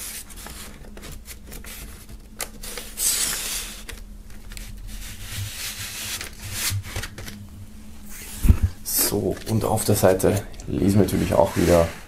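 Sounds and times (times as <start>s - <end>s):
paper and card rustling: 0.0s - 7.4s, 8.1s - 12.0s
records sliding into sleeves: 9.1s - 12.0s.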